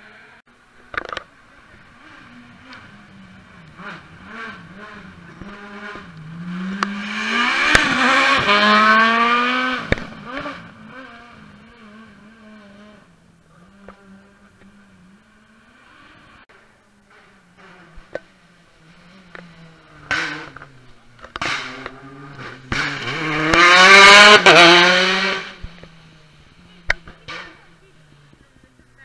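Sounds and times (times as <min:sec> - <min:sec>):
rally car passing at speed: 0:01.0 - 0:28.9
sharp cracks from car: 0:07.6 - 0:08.6, 0:09.8 - 0:10.6, 0:19.3 - 0:23.7.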